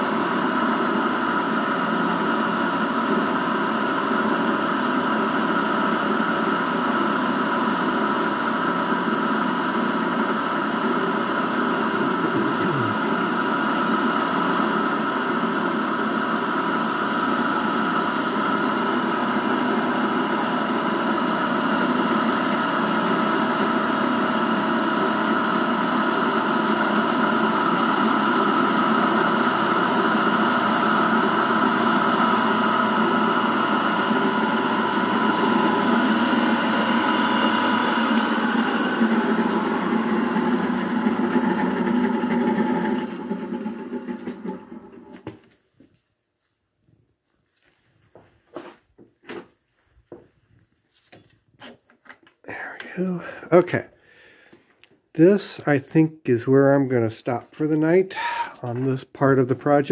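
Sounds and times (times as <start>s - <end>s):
end mill cutting metal: 0.0s - 45.2s
milling machine drone: 0.0s - 45.2s.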